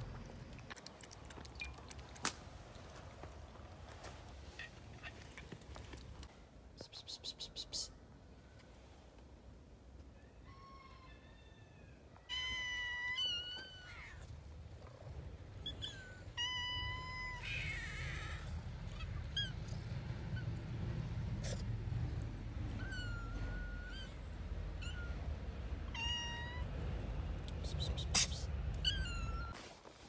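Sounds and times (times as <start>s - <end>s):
cats meowing: 11.6s - 14.4s, 15.6s - 20.8s, 22.6s - 26.8s, 28.0s - 29.6s.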